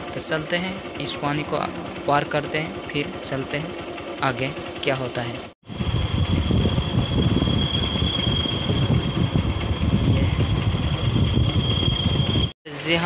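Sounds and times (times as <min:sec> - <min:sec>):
motorcycle engine rumble: 0:00.0 - 0:12.6
high-pitched whine: 0:05.6 - 0:13.0.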